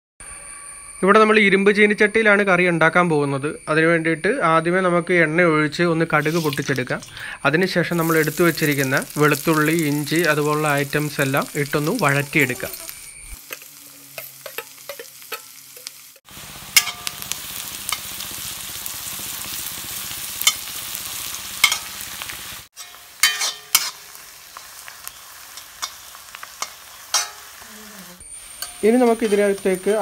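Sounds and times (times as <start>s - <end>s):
vegetables sizzling in hot oil: 6.0s - 30.0s
steel spatula scraping a pan: 12.2s - 16.2s, 16.8s - 17.2s, 21.6s - 22.0s, 22.7s - 24.2s, 25.0s - 27.6s, 28.2s - 30.0s.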